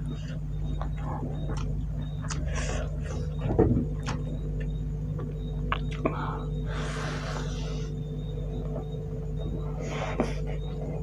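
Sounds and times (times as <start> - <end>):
steady low hum: 0.0 - 11.0
wet mouth clicks chewing: 0.6 - 2.7, 4.0 - 6.2
breathy hiss: 6.0 - 8.0.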